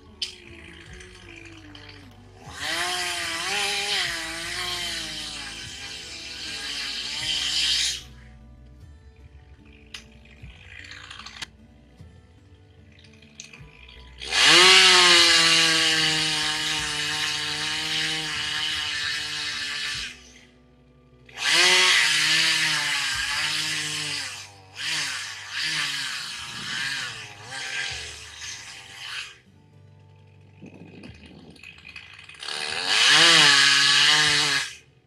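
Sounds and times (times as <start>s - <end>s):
chainsaw revving: 0.0s - 8.3s, 14.1s - 20.5s, 21.3s - 29.4s, 30.7s - 34.9s.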